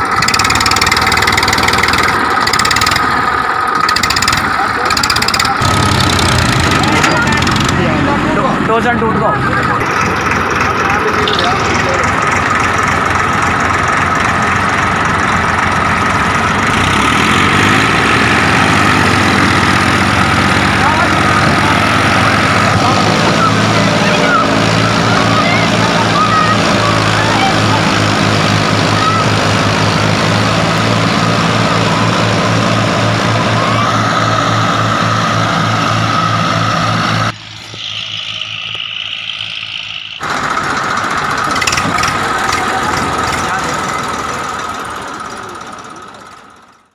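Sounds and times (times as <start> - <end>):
tractor diesel engines straining: 0.0 - 46.9
high-pitched hum: 33.2 - 41.8.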